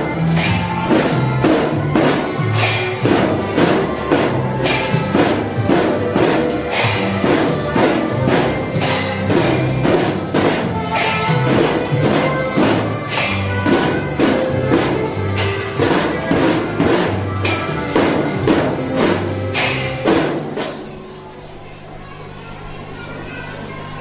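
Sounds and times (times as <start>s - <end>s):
snare drums: 0.0s - 21.5s
tambourine jingles: 0.0s - 22.0s
hand cymbals: 0.0s - 22.2s.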